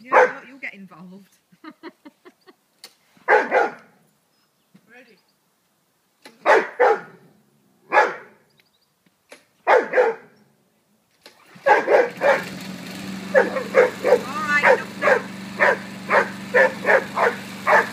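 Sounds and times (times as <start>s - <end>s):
dog barking: 0.1s - 0.4s, 3.3s - 3.9s, 6.4s - 7.2s, 7.9s - 8.4s, 9.7s - 10.4s, 11.6s - 12.5s, 13.3s - 17.9s
dog yelping: 3.3s - 3.8s, 6.4s - 7.2s, 7.9s - 8.3s, 9.7s - 10.4s, 11.5s - 12.5s, 13.3s - 17.9s
lawnmower engine running: 11.2s - 17.9s.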